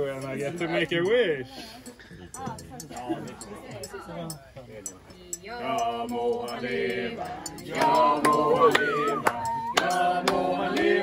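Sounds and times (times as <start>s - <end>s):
group of people singing: 5.3s - 11.0s
sharp claps: 7.7s - 11.0s.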